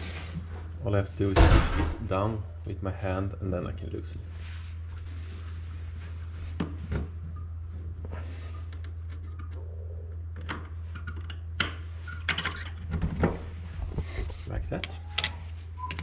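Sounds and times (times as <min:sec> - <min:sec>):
low hum: 0:00.0 - 0:12.2.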